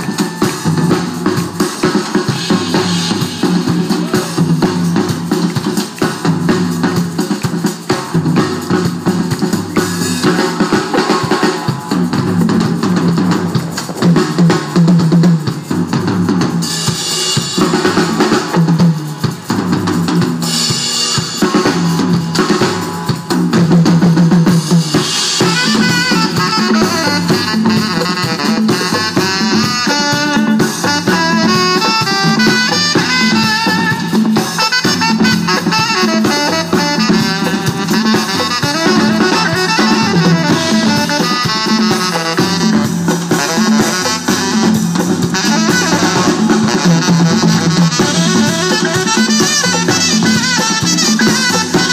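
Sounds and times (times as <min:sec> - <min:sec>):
live band playing: 0:00.0 - 0:51.9
saxophone lead line: 0:24.8 - 0:51.9.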